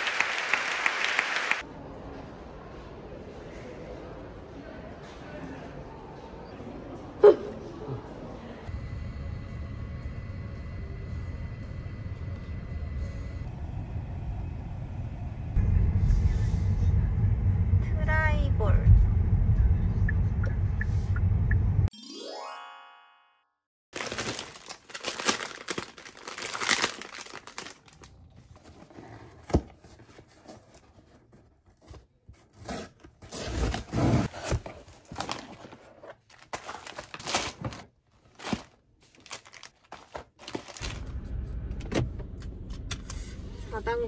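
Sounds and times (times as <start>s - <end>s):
rustling and crinkling handling noises: 24.0s - 41.1s.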